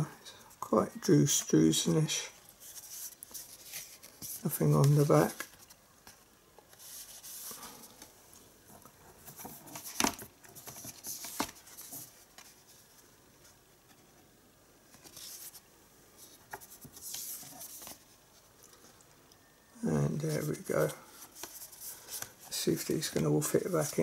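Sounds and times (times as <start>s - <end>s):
cards rustling and sliding: 9.2s - 12.9s, 14.9s - 15.6s, 16.2s - 18.1s, 20.3s - 24.0s.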